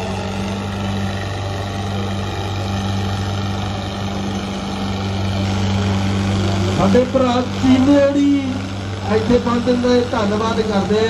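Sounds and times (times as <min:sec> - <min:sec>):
engine droning steadily: 0:00.0 - 0:11.0.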